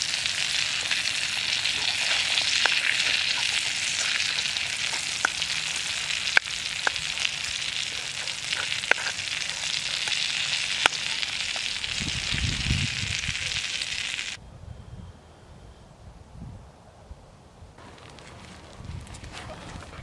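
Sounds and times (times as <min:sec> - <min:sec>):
food sizzling in a frying pan: 0:00.0 - 0:14.4.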